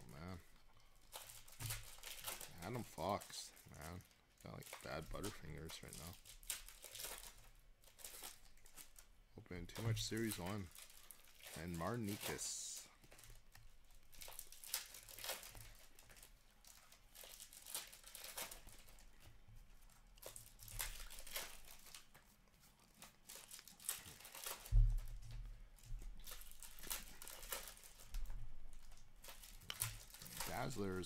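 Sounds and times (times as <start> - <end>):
trading cards rustling: 0.0 - 31.0.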